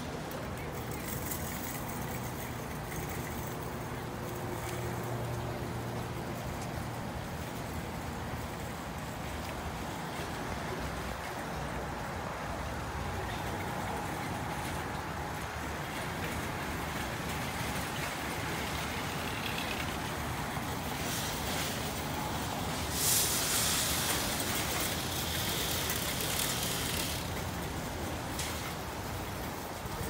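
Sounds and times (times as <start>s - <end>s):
low rumble of traffic: 0.0s - 30.0s
loud hiss: 20.9s - 27.3s.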